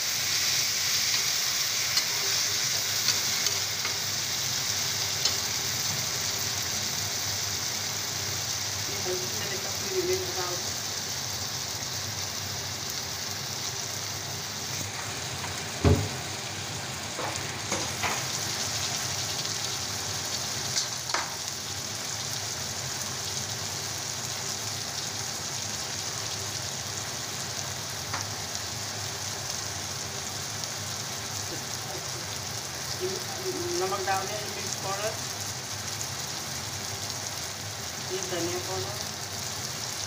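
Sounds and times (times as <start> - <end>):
vegetables sizzling in oil: 0.0 - 40.0
utensils knocking against pan: 20.8 - 21.4.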